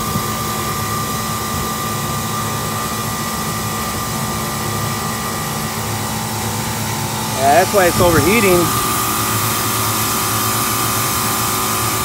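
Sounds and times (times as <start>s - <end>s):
compressor and fan hum: 0.0s - 12.0s
high whine: 7.0s - 9.9s.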